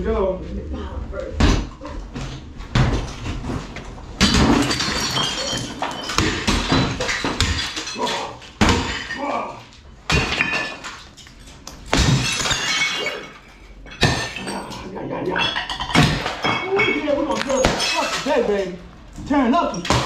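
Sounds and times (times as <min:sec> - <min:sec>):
glass shattering: 0:04.2 - 0:18.8.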